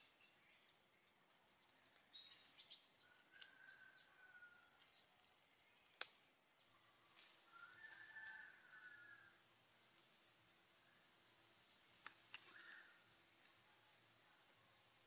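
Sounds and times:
faint bird chirps: 0:00.0 - 0:09.3, 0:12.4 - 0:15.0.

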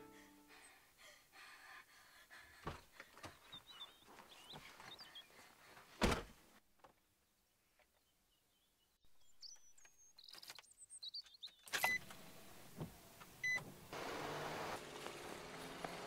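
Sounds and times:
car cabin noise: 0:12.0 - 0:16.0
vehicle engine driving: 0:13.9 - 0:16.0.

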